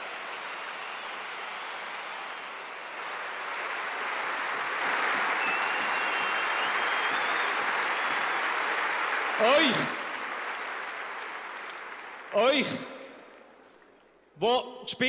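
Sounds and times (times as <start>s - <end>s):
stadium crowd applauding: 0.0s - 14.0s.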